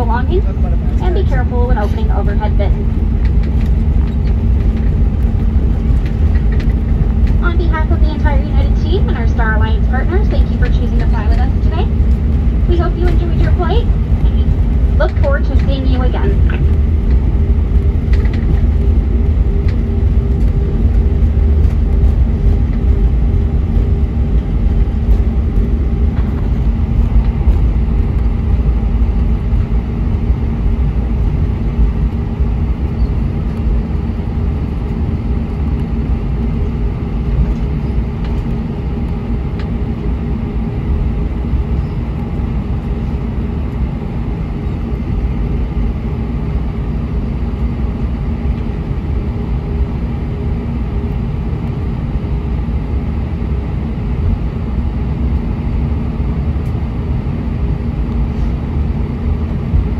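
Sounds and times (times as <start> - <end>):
aircraft cabin rumble: 0.0 - 59.9
jet engines humming at idle: 0.0 - 59.9.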